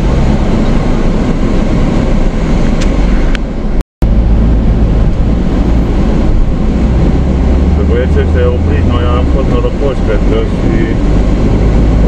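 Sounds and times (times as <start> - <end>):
engine and road rumble: 0.0 - 12.0.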